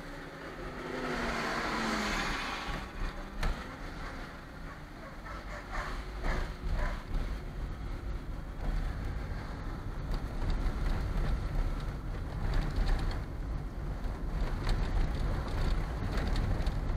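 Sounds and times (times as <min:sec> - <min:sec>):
engine and tyres rumbling: 0:00.0 - 0:16.9
small clicks and rattles: 0:10.1 - 0:16.9.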